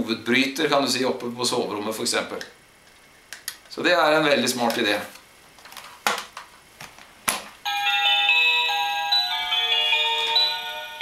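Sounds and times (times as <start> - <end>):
electronic chime melody: 7.7 - 11.0.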